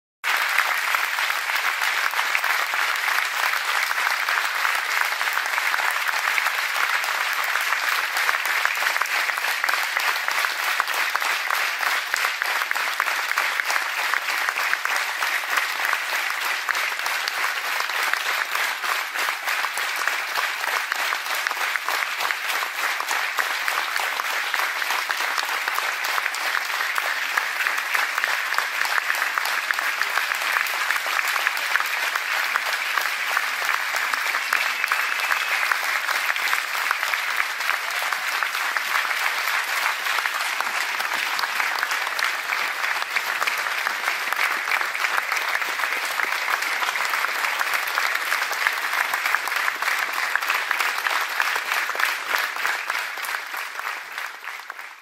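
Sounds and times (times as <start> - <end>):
crowd applauding: 0.2 - 55.0
audience whistling: 34.2 - 35.9.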